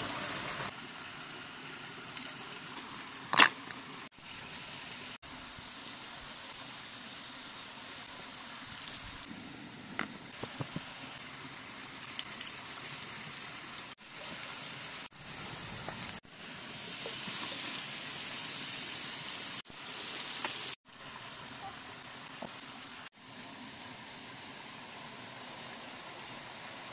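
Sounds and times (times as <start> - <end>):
fish sizzling on a grill pan: 10.4 - 20.8.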